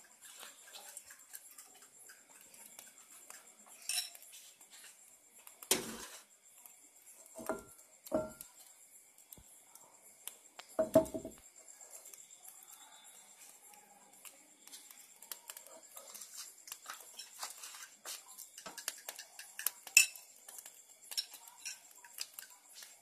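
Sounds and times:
oil popping and crackling: 0.0s - 8.6s, 13.7s - 23.0s.

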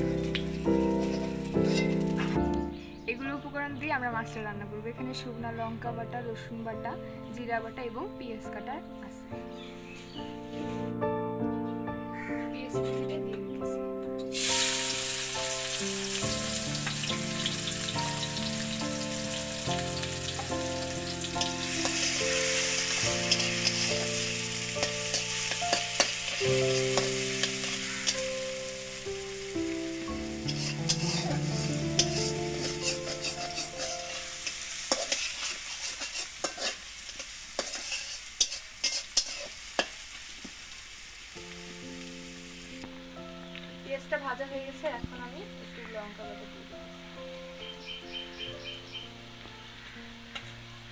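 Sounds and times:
onions sizzling in hot oil: 0.0s - 2.4s, 14.2s - 50.9s
spatula scraping and tapping wok: 0.2s - 2.4s, 20.0s - 28.3s, 30.4s - 40.6s.

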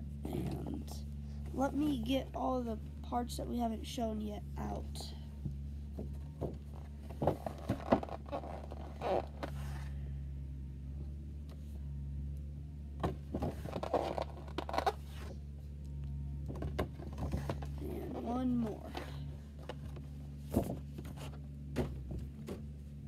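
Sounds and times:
steady low hum: 0.0s - 23.0s
packaging rustling and scraping: 6.7s - 9.9s, 13.4s - 15.4s.

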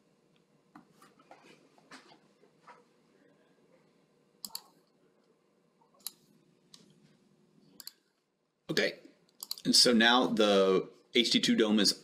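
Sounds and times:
faint room hum: 0.0s - 12.0s
computer mouse clicks: 4.4s - 4.8s, 6.0s - 6.9s, 7.8s - 8.1s, 9.3s - 9.7s.

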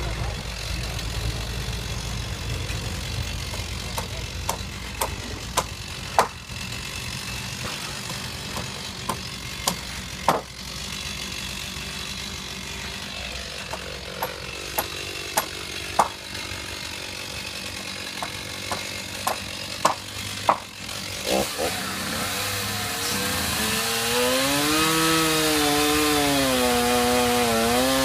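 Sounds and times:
small engine idling: 0.0s - 23.6s
hammer blows on lumber: 7.6s - 10.5s, 13.7s - 16.2s, 18.2s - 20.7s.

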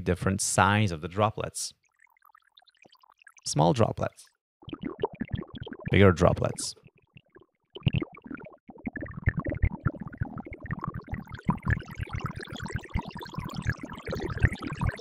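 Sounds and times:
synthesized water droplet blips: 1.8s - 3.5s, 4.6s - 15.0s.

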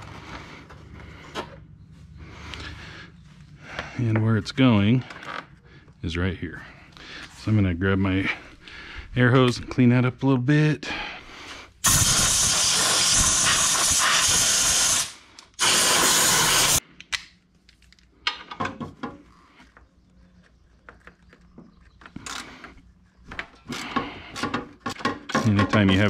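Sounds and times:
compressed air blowgun hissing: 11.8s - 16.8s.

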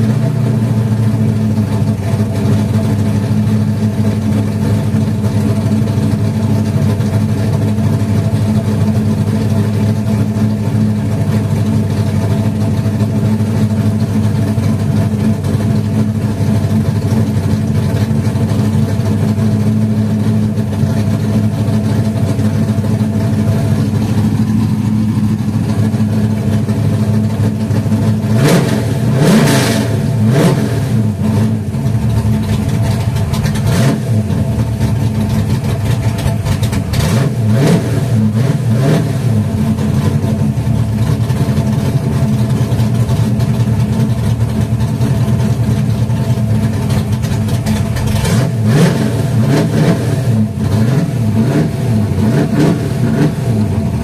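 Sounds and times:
car engine idling and revving: 0.0s - 54.0s.

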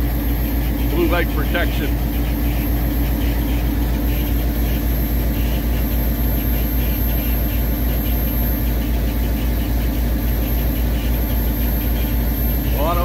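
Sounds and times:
diesel locomotive idling: 12.7s - 13.0s.

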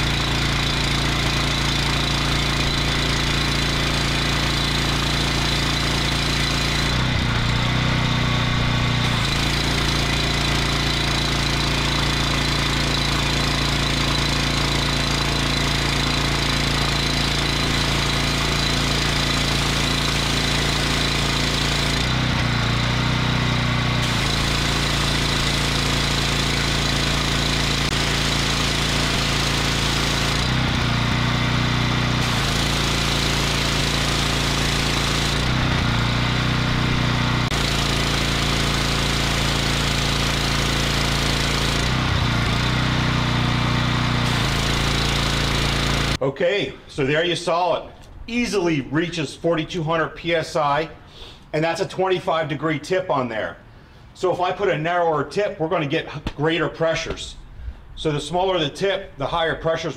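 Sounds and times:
pressure washer engine running: 0.0s - 46.2s.

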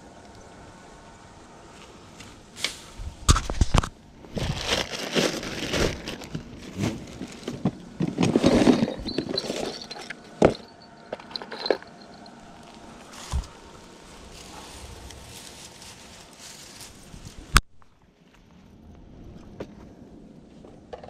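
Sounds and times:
rustling in dry grass: 1.6s - 17.6s.

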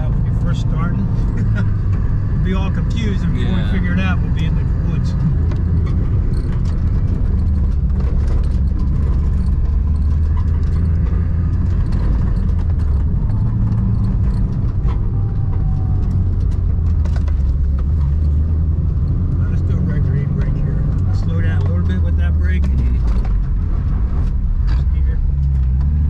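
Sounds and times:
road noise: 0.0s - 26.0s
vehicle engine drone: 0.0s - 26.0s.

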